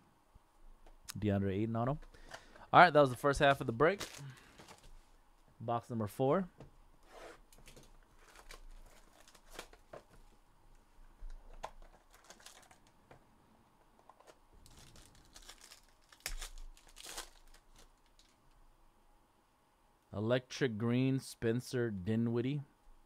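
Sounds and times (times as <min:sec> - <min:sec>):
foil wrapper crinkling and tearing: 0:03.8 - 0:04.9, 0:07.6 - 0:09.8, 0:11.8 - 0:13.0, 0:14.6 - 0:18.4.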